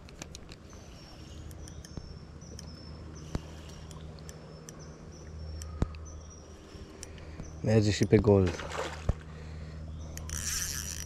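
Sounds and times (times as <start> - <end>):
fishing reel whirring: 9.6 - 11.0.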